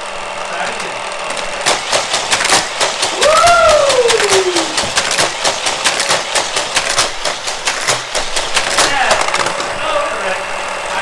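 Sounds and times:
motorized speed boosters whirring: 0.0 - 11.0
toy cars clattering on plastic track: 0.1 - 11.0
high tone gliding down: 3.2 - 4.9.

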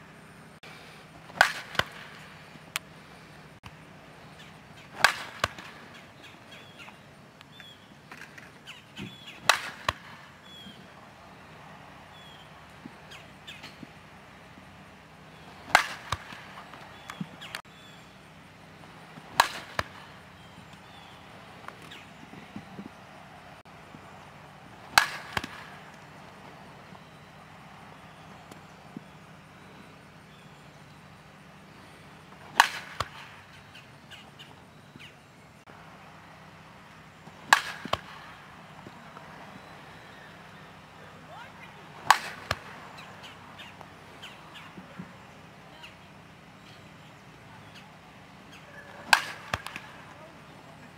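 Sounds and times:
bat cracking softball: 1.2 - 2.9, 3.6 - 10.9, 15.4 - 17.6, 19.1 - 23.0, 24.6 - 26.4, 32.3 - 34.6, 36.9 - 40.6, 41.5 - 45.1, 48.5 - 50.4.

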